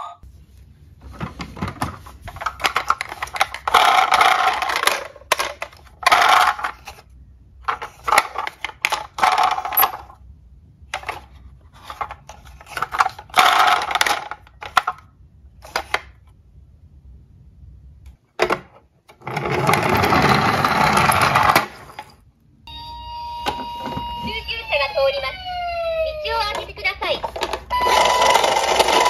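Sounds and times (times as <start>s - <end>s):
toy cars clattering and scraping: 1.0s - 10.2s, 10.9s - 15.0s, 15.6s - 16.2s, 18.4s - 22.2s, 26.5s - 29.0s.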